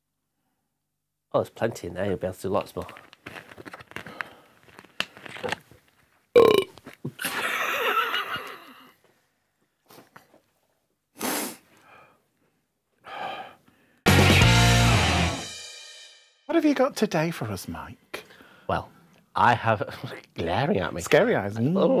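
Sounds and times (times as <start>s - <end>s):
man burping loudly: 6.4s - 6.7s.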